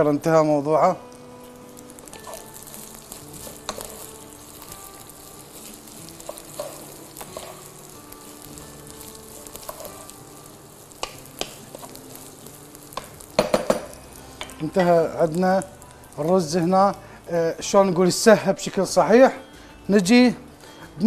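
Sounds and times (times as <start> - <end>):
rice sizzling in a pot: 0.0 - 21.0
wooden spoon knocking on pot: 13.4 - 14.9.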